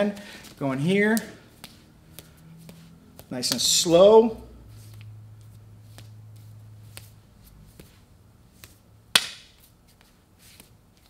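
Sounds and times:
hands slapping and tapping: 0:06.9 - 0:08.0, 0:08.6 - 0:11.0.

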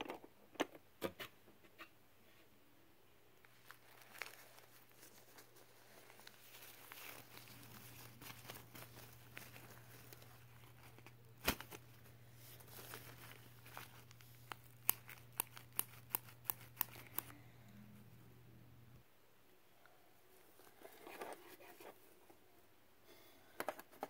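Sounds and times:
faint handling noise: 0:03.4 - 0:18.3, 0:20.3 - 0:22.5
steady low hum: 0:05.8 - 0:20.3.

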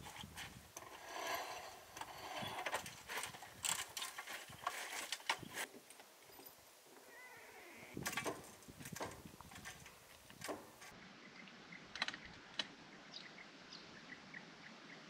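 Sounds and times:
folding ladder clanking: 0:00.0 - 0:05.7, 0:08.0 - 0:10.9.

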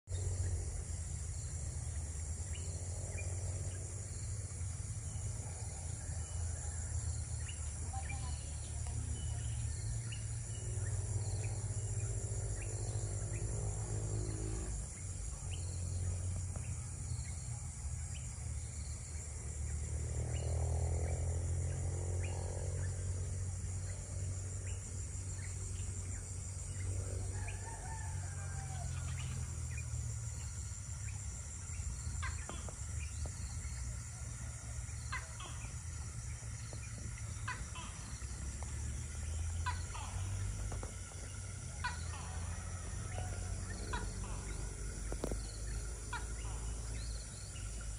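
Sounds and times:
high insect drone: 0:00.1 - 0:47.9
steady low rumble: 0:28.9 - 0:47.9
animal calls: 0:35.0 - 0:47.8.

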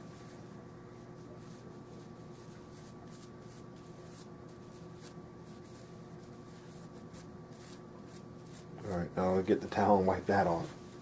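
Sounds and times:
toothbrush scrubbing metal: 0:01.3 - 0:08.8.

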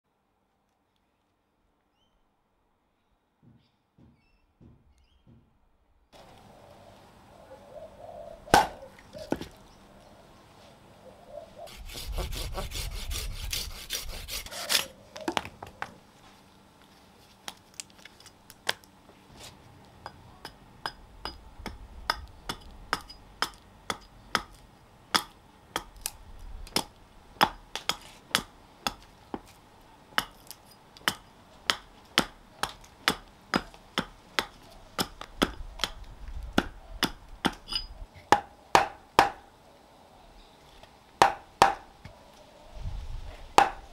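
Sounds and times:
hatchet chopping wood: 0:08.5 - 0:09.5, 0:20.5 - 0:29.6, 0:30.2 - 0:36.0, 0:36.6 - 0:39.4, 0:41.2 - 0:41.9, 0:43.6 - 0:43.8
rasping noise: 0:11.7 - 0:14.9.

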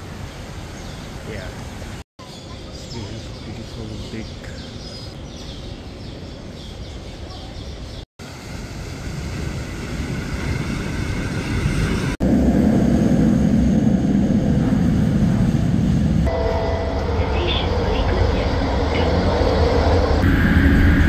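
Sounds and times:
steady outdoor hiss: 0:00.0 - 0:11.6
metro train rumbling past: 0:05.6 - 0:21.0.

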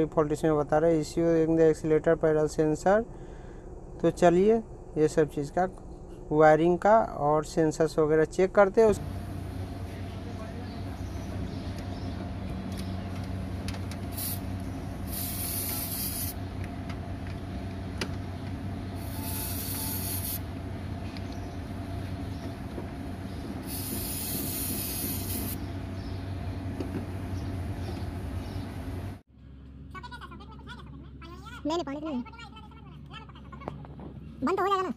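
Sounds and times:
steady low hum: 0:00.0 - 0:34.9
aerosol spray can hissing: 0:14.1 - 0:14.4, 0:15.1 - 0:16.4, 0:19.0 - 0:20.4, 0:23.6 - 0:25.6.

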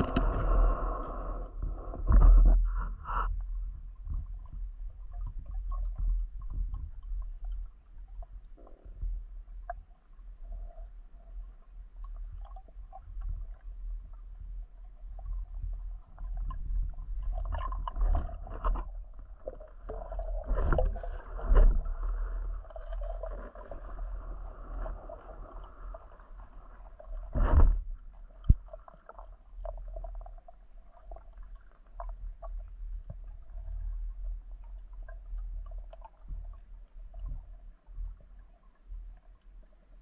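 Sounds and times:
underwater water rumble: 0:00.0 - 0:40.0
gurgling water surges: 0:10.4 - 0:30.3.

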